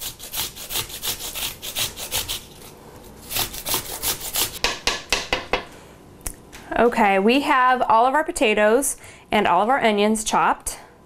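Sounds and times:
grater rasping through vegetables: 0.0s - 4.6s.

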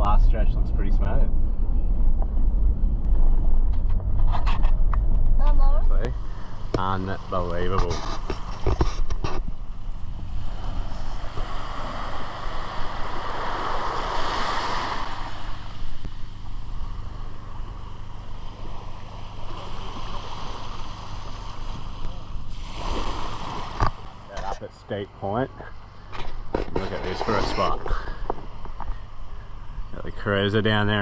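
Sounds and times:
low rumble: 0.0s - 24.6s
small waves lapping on beach: 6.1s - 24.3s.

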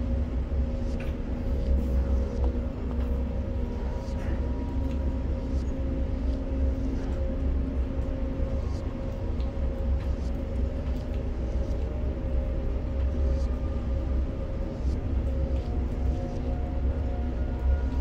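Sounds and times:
crane machinery rumble and hum: 0.0s - 18.0s.

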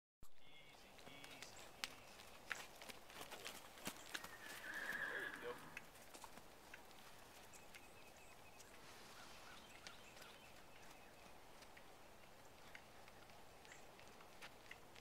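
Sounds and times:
soft scattered ticks: 9.7s - 15.0s.

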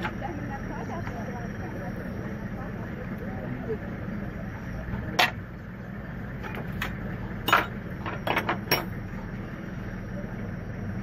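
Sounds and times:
low background rumble: 0.0s - 11.0s
spanner clinking on metal: 6.8s - 9.0s.

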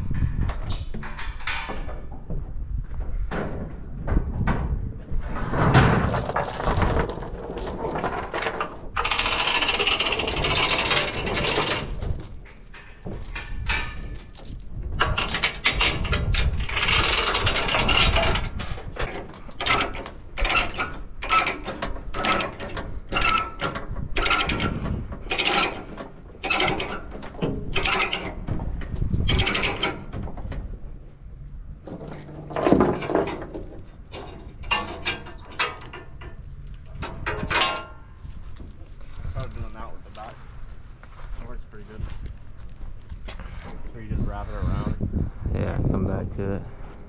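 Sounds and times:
chain links clanking: 0.7s - 1.9s, 5.8s - 28.4s, 29.3s - 30.1s, 31.8s - 38.1s.

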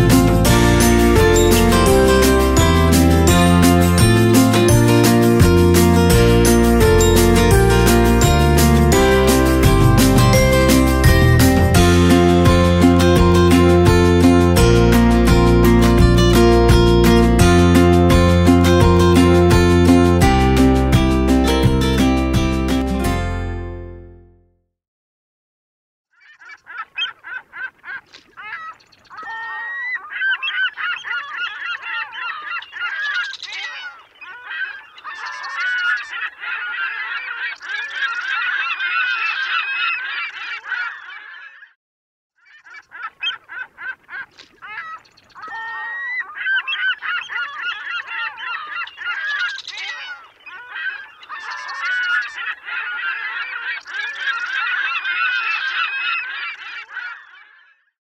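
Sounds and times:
geese honking: 26.2s - 41.6s, 42.5s - 57.7s.

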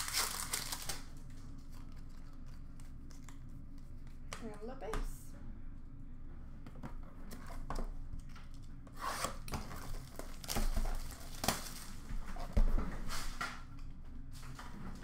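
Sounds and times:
cardboard box crinkling and tearing: 0.0s - 1.0s, 9.7s - 12.0s.

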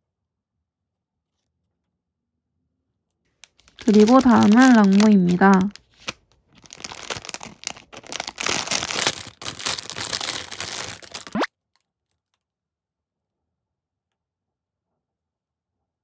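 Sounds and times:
plastic bag crinkling: 3.4s - 11.5s.

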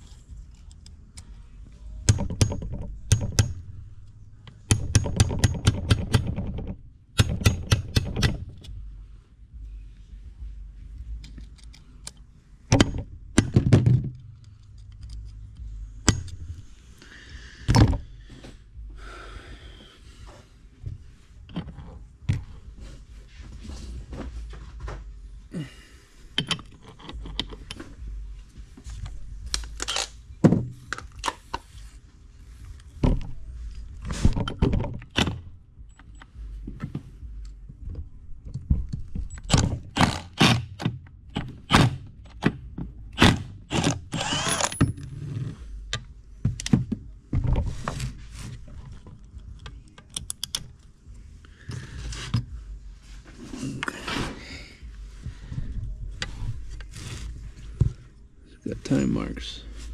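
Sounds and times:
metal parts and tools clinking: 26.4s - 28.0s, 29.4s - 30.2s, 43.7s - 45.2s.

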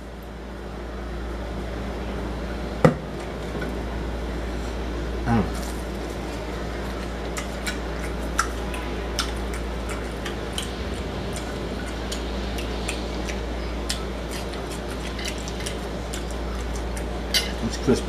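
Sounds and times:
steady low hum: 0.0s - 18.0s
person chewing crispy chicken: 5.5s - 17.4s
wet mouth sounds: 7.0s - 17.1s.

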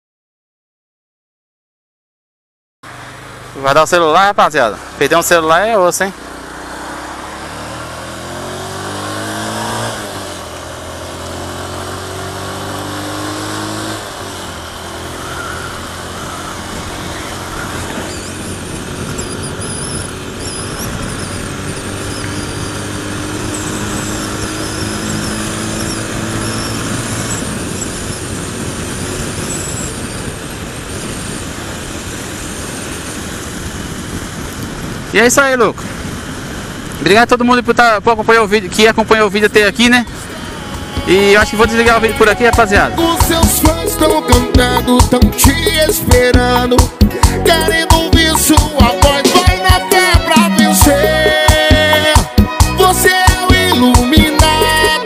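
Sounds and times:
motorcycle engine accelerating: 2.9s - 35.1s, 38.8s - 55.0s
wind rushing over microphone: 13.5s - 43.4s.

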